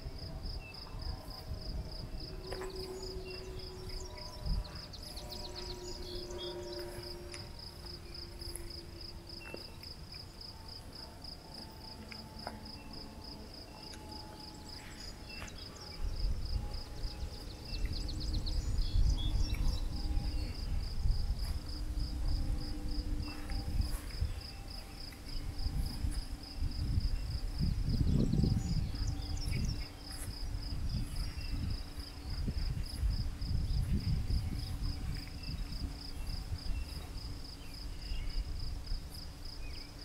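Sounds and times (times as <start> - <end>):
crickets chirping: 0.0 - 40.0
wind rumble on microphone: 0.0 - 40.0.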